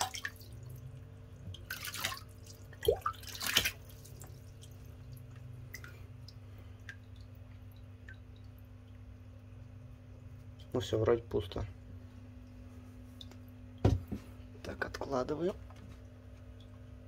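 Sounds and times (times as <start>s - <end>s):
water splashing: 0.0s - 9.7s
faint water drips: 0.0s - 17.0s.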